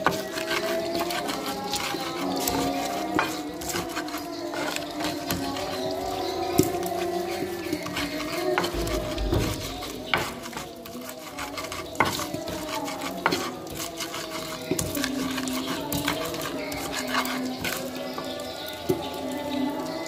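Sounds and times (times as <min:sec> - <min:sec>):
stone pestle grinding in mortar: 0:00.0 - 0:20.0.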